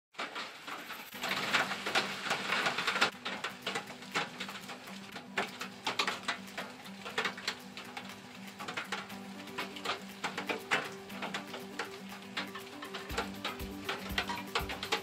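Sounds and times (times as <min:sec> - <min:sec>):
rain drops tapping: 0:00.2 - 0:15.0.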